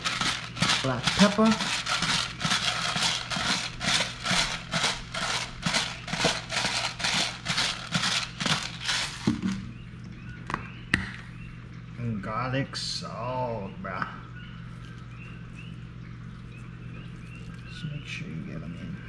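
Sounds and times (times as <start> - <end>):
pepper bottle gritty rattle: 0.0 - 9.6.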